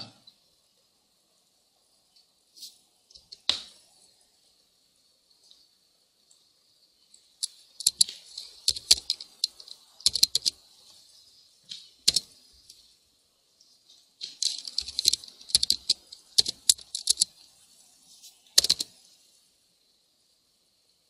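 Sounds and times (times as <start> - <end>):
keyboard typing clicks: 7.8 - 10.6, 12.1 - 12.3, 14.2 - 17.3, 18.6 - 18.9.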